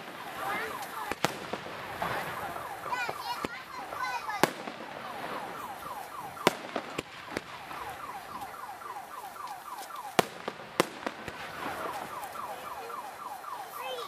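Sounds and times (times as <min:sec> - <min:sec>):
fireworks bangs and pops: 0:00.0 - 0:13.4.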